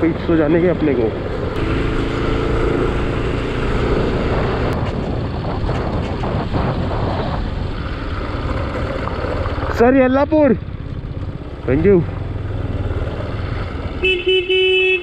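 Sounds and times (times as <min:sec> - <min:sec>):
motorcycle engine running: 0:00.0 - 0:14.5
road noise: 0:00.0 - 0:15.0
wind noise on microphone: 0:03.0 - 0:08.0.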